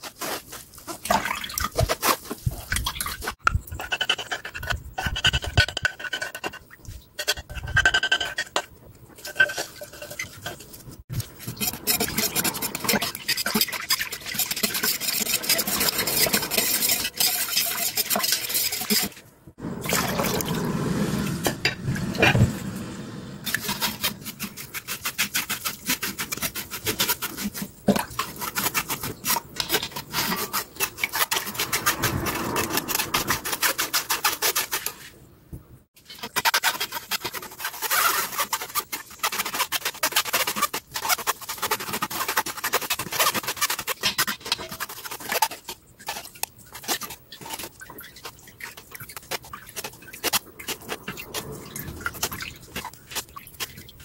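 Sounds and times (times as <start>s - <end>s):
spoon rasping through mesh strainer: 1.7s - 19.2s, 23.5s - 35.1s.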